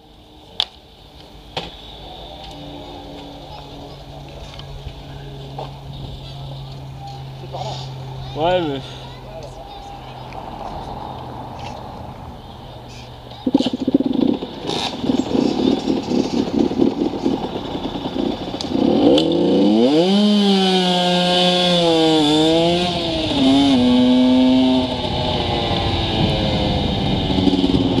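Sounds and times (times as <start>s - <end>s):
dirt bike engine revving: 11.0s - 28.0s.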